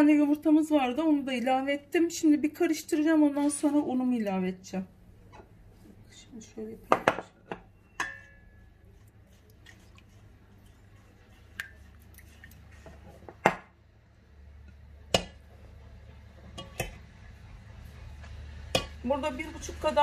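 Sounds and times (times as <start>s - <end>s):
liquid sloshing in a bowl: 8.1s - 13.4s
clicks and knocks against bowl: 16.5s - 17.0s.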